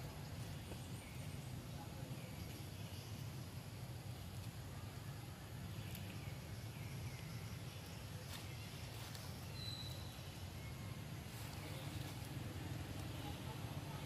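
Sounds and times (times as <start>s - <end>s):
faint bird chirps: 4.6s - 12.2s.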